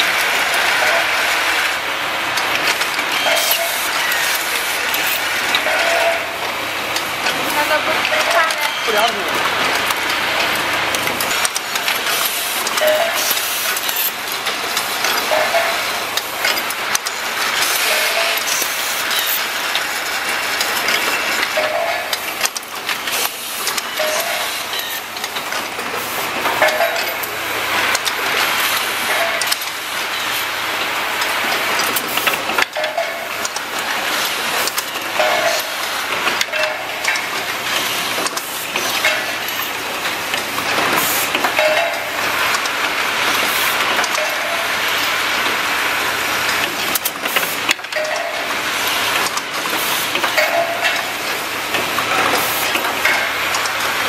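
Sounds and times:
machine clacks: 0:00.0 - 0:54.0
machine clattering and hissing: 0:00.0 - 0:54.0
brief machine tone: 0:03.2 - 0:04.3, 0:12.8 - 0:13.2, 0:23.9 - 0:25.0.

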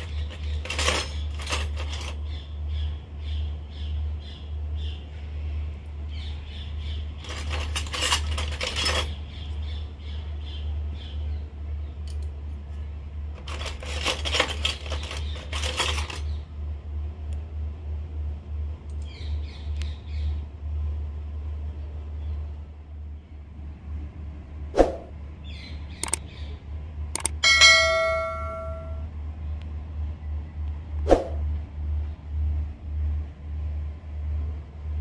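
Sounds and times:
toy metal utensils clinking: 0:00.0 - 0:02.2, 0:07.2 - 0:09.2, 0:13.4 - 0:16.3
steady low hum: 0:00.0 - 0:35.0.

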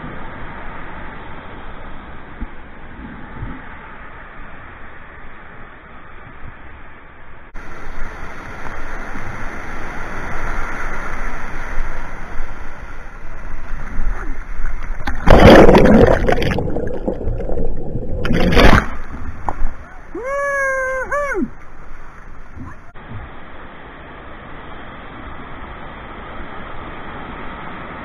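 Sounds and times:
white water rushing: 0:07.5 - 0:28.0
water splashing over kayak: 0:07.6 - 0:20.2.

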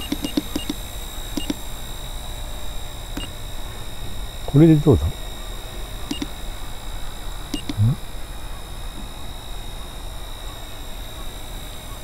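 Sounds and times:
faint high whine: 0:00.0 - 0:12.0
short electronic beeps: 0:06.1 - 0:06.4, 0:07.6 - 0:08.0.

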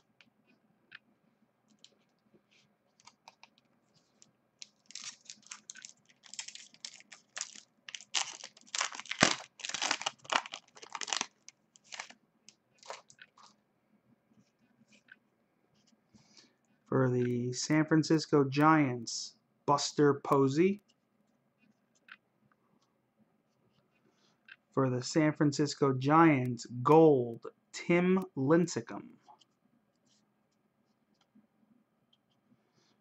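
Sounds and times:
foil wrapper crinkling and tearing: 0:04.6 - 0:12.2, 0:12.8 - 0:13.5.

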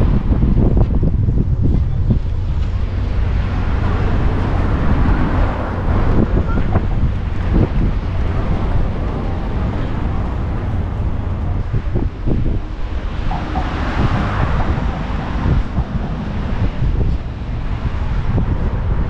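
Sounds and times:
steady low rumble: 0:00.0 - 0:19.0
wind buffeting microphone: 0:00.0 - 0:19.0
faint voices: 0:04.0 - 0:17.9.

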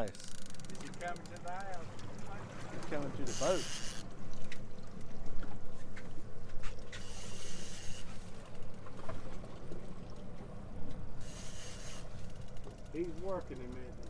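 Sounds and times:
water sloshing along hull: 0:00.0 - 0:14.0
boat motor running: 0:08.0 - 0:14.0.

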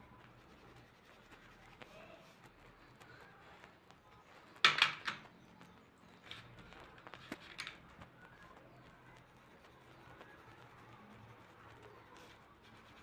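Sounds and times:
pencil scratching on paper: 0:00.0 - 0:04.3, 0:09.0 - 0:13.0.

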